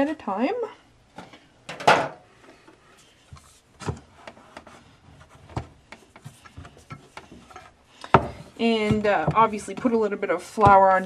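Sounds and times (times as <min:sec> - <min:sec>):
rolling pin rolling dough: 0:03.4 - 0:11.0
rolling pin knocking on wood: 0:08.1 - 0:10.0, 0:10.6 - 0:11.0.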